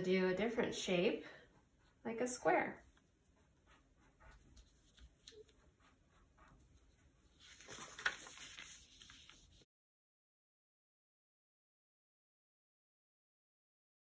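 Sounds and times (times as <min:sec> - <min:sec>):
marker scratching on paper: 0:02.8 - 0:07.5
paper rustling: 0:03.7 - 0:09.7.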